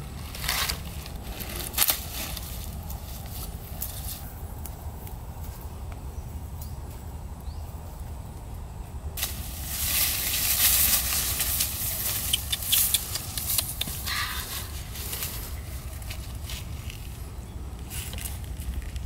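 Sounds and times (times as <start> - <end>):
twigs crackling: 0.0 - 6.1, 9.2 - 19.0
leaves rustling: 0.0 - 19.0
steady low rumble: 0.0 - 19.0.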